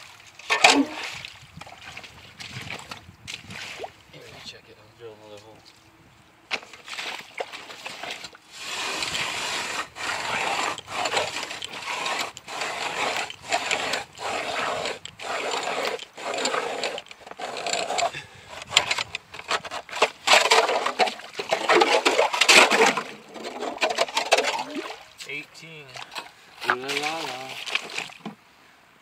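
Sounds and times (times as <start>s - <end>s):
ice auger blades grating: 0.4s - 1.1s, 7.9s - 24.8s.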